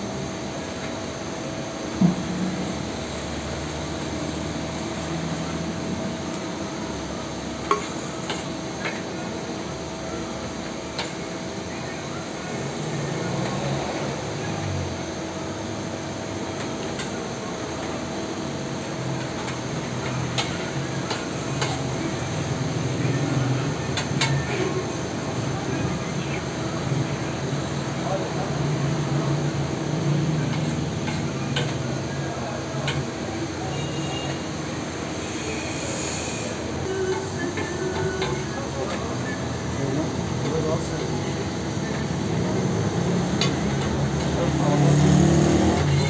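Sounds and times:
food sizzling on a griddle: 35.0s - 39.8s.

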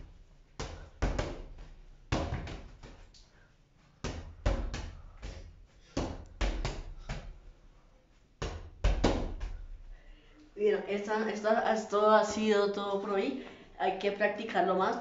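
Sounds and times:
volleyball slapping against wall: 0.0s - 3.2s, 4.0s - 7.5s, 8.4s - 10.0s.

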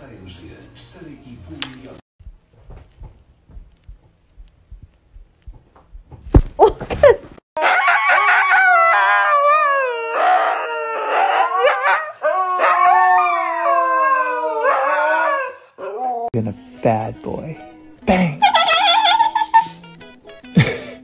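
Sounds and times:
soft thumps: 2.2s - 7.3s
husky howling: 7.6s - 16.3s.

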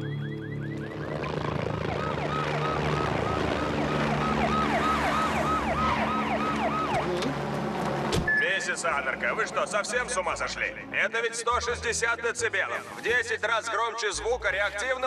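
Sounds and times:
police siren yelping: 0.0s - 7.4s.

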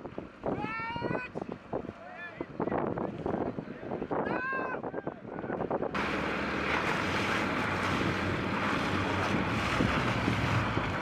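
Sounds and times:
wind on microphone: 0.0s - 11.0s
outboard motor running: 5.7s - 11.0s.

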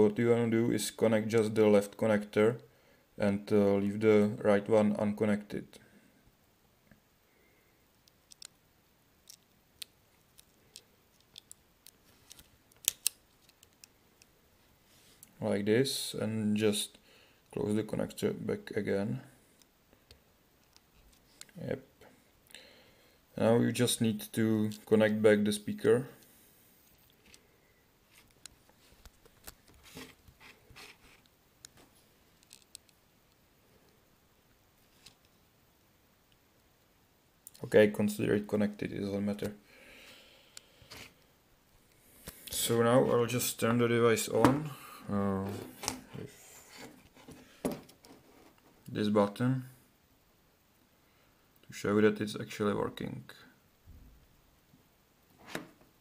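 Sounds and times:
fingertips clicking on cable connector: 8.0s - 8.6s, 9.2s - 14.3s.

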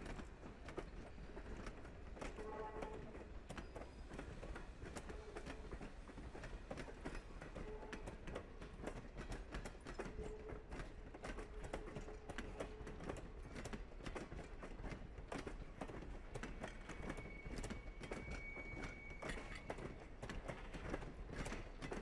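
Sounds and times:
train wheels clicking over rail joints: 0.0s - 22.0s
wheel squeals: 16.4s - 20.0s.

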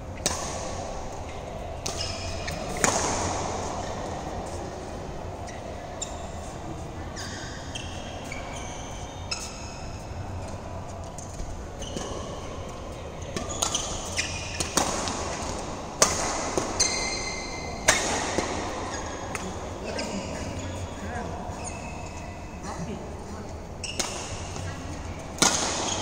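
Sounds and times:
rackets smacking shuttlecock: 0.2s - 4.6s, 11.1s - 20.2s, 23.8s - 26.0s
sneakers squeaking on court: 7.2s - 10.4s, 11.7s - 15.1s, 16.6s - 22.4s, 23.8s - 24.8s.

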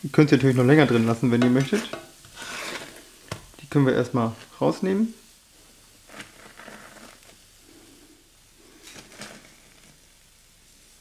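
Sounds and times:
spatulas scraping a ceramic plate: 0.8s - 3.1s, 6.1s - 7.2s.

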